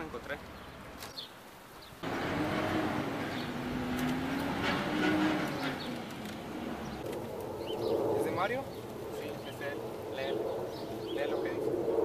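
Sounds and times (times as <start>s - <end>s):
road noise: 0.0s - 12.0s
vehicle engine running: 2.0s - 7.1s.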